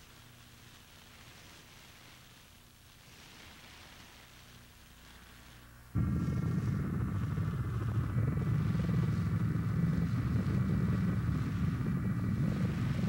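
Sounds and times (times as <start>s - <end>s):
high whining tones: 6.0s - 13.0s
loud rumbling drone: 6.0s - 13.0s.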